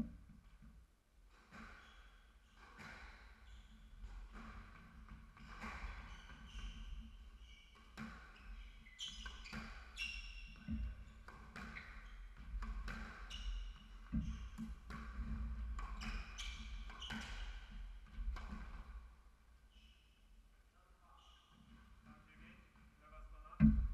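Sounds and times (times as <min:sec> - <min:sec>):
shoes squeaking on wooden floor: 0:02.8 - 0:18.9.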